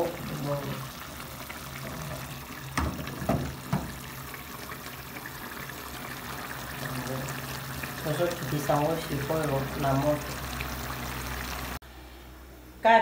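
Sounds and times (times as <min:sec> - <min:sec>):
stew bubbling in a pot: 0:00.0 - 0:11.8
sharp knocks: 0:02.8 - 0:04.0.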